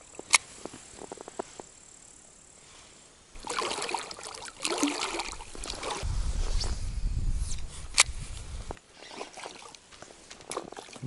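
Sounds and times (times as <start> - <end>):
water splashing: 3.4 - 6.1, 9.0 - 11.0.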